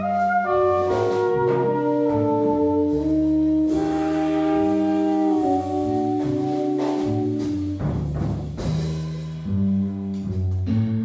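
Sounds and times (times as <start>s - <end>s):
saxophones holding long notes: 0.0s - 7.9s
double bass: 0.0s - 11.0s
drum cymbals: 3.6s - 10.5s.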